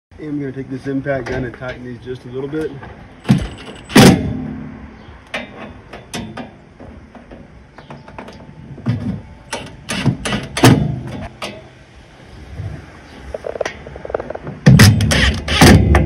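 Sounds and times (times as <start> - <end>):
impact driver bursts: 14.7 - 16.0.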